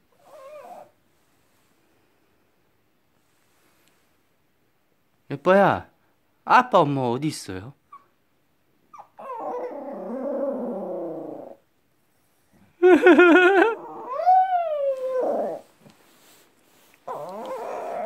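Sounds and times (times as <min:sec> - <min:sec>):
dog howling: 0:09.2 - 0:11.6, 0:13.8 - 0:15.7, 0:17.1 - 0:18.0.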